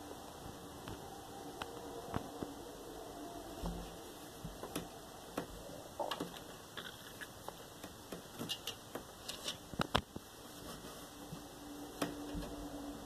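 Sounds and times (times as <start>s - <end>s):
cat paws tapping and scratching: 4.5s - 11.4s.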